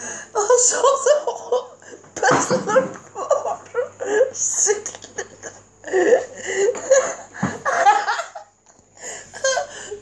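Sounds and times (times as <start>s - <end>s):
people laughing: 2.3s - 8.5s.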